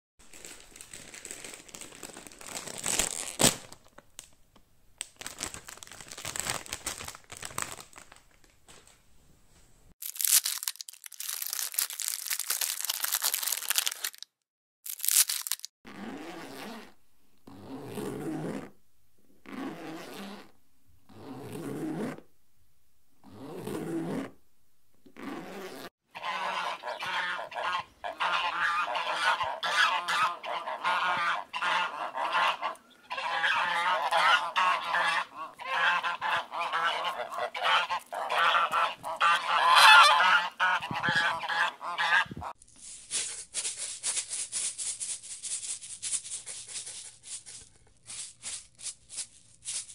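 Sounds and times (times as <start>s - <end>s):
crinkly bag rustling and tearing: 0.2s - 4.4s, 5.0s - 8.9s, 10.0s - 15.7s
goose honking: 26.1s - 42.5s.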